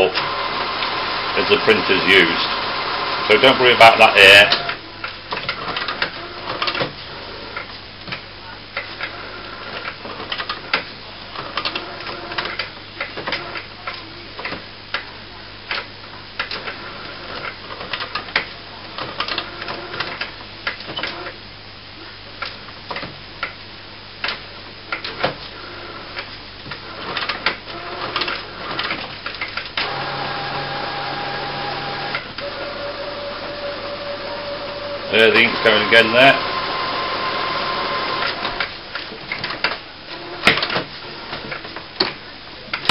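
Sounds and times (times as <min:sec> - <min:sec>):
printer motor whining: 0:00.0 - 0:04.8, 0:29.8 - 0:38.8.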